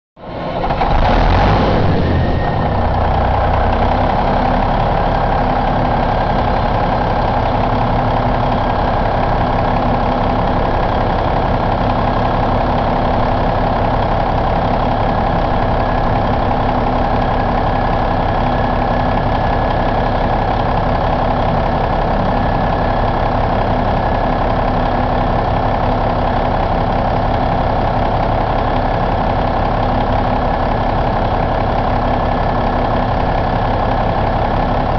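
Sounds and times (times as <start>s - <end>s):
diesel engine idling: 0.2s - 34.9s.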